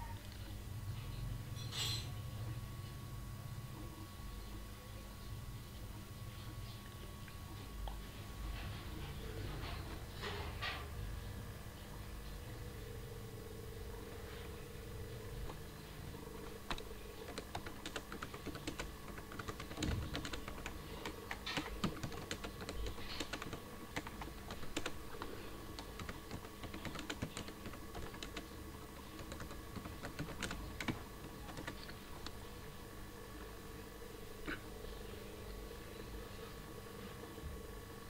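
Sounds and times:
faint hum: 0.0s - 38.0s
keyboard key clicks: 16.5s - 28.5s.

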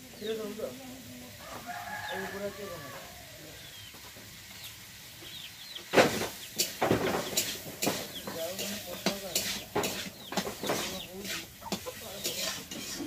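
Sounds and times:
metal spatula scraping a wok: 6.1s - 13.0s.

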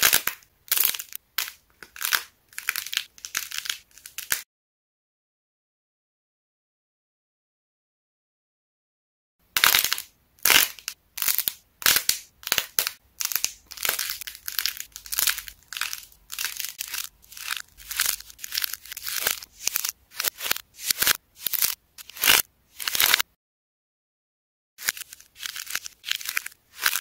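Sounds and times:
clay shell cracking and crunching: 0.0s - 4.4s, 9.6s - 23.2s, 24.8s - 27.0s.

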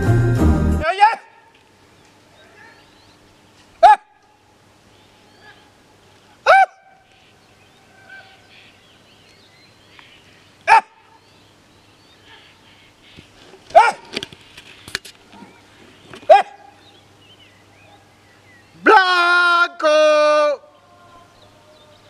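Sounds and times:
dog barking: 3.8s - 4.1s, 10.7s - 11.0s, 13.7s - 14.1s, 16.3s - 16.7s.

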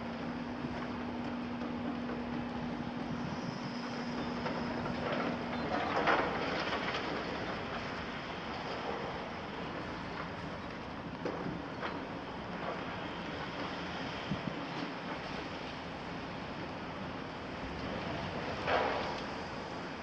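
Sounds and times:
diesel engine drone: 0.0s - 20.0s
rattling of machines and rubble: 0.0s - 20.0s.

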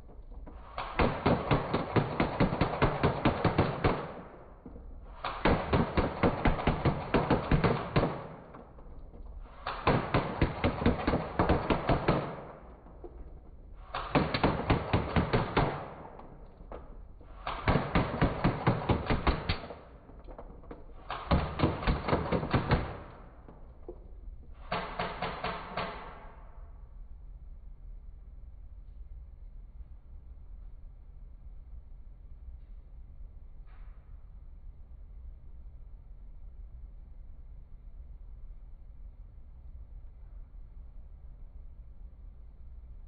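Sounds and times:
airsoft gun firing bursts: 0.7s - 8.9s, 9.5s - 23.7s, 24.6s - 26.2s
pellets striking cardboard box: 4.7s - 8.7s, 14.0s - 23.3s.

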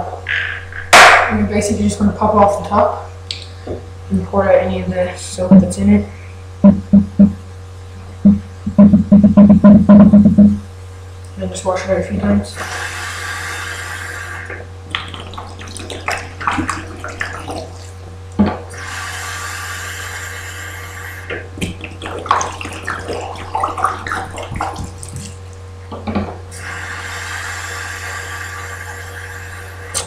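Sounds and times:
sharp knock: 0.9s - 1.3s
tap water filling plastic bottle: 14.5s - 18.6s, 21.3s - 25.5s
water sloshing and splashing: 14.8s - 18.4s, 21.6s - 25.6s.

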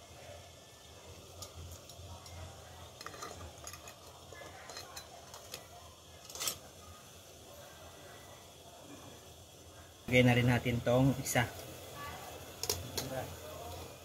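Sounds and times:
metal tongs clinking on pans: 1.3s - 6.7s, 12.6s - 13.2s.

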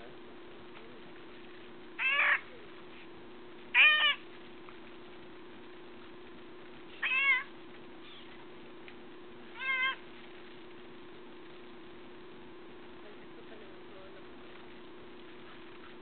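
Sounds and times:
faint steady hum: 0.0s - 16.0s
cat meowing: 2.0s - 2.5s, 3.8s - 4.2s, 7.0s - 7.5s, 9.5s - 10.0s.

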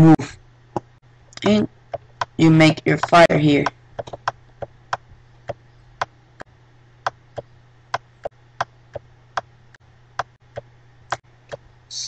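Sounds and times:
faint low hum: 0.0s - 12.0s
touchpad buttons clicking: 1.4s - 6.1s.

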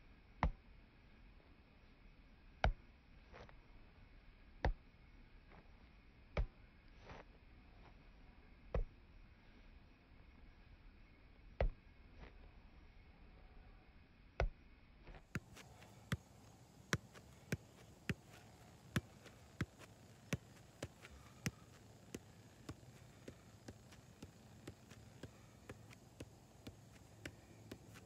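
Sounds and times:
foot kicking soccer ball: 15.3s - 28.0s.

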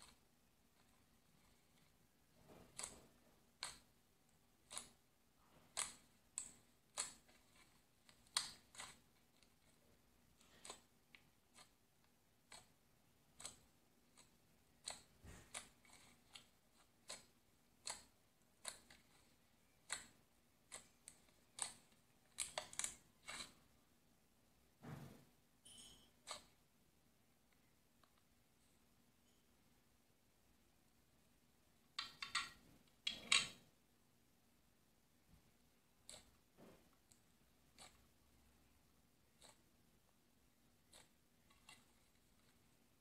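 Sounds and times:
slime squishing with sticky pops: 0.0s - 23.6s.

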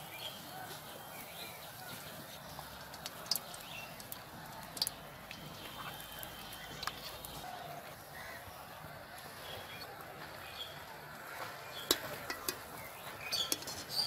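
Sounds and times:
batter sizzling in hot oil: 1.0s - 7.5s.

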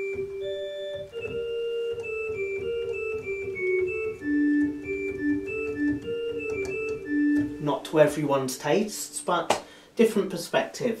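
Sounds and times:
organ playing bright flute stops: 0.0s - 7.6s.

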